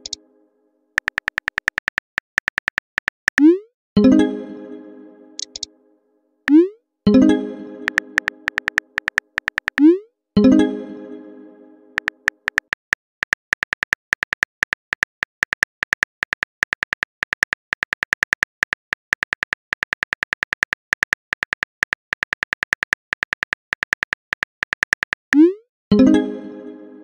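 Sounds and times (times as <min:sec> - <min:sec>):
keyboard typing clicks: 0:00.0 - 0:00.2, 0:01.0 - 0:03.6, 0:05.4 - 0:05.7, 0:06.5 - 0:06.7, 0:07.8 - 0:10.0, 0:12.0 - 0:25.5
message chime: 0:06.5 - 0:08.7.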